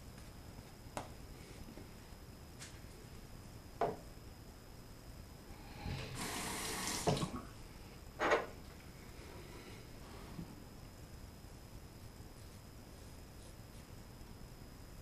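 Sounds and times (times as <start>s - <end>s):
bathroom sink tap running: 5.9s - 7.4s.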